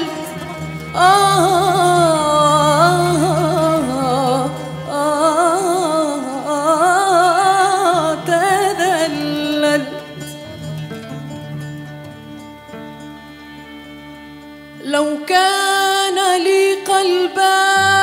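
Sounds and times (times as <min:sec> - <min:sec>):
woman singing with vibrato: 0:00.0 - 0:10.2, 0:14.8 - 0:18.0
sustained low accompaniment note: 0:17.8 - 0:18.0.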